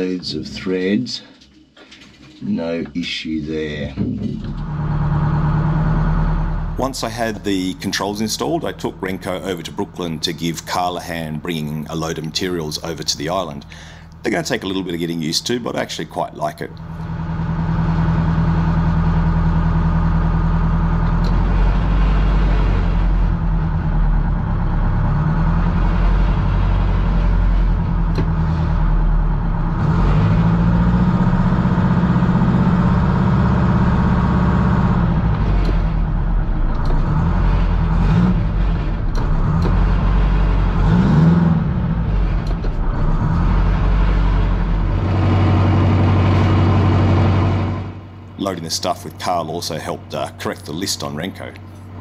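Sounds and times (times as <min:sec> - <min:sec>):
diesel boat engine revving: 0:04.4 - 0:48.6.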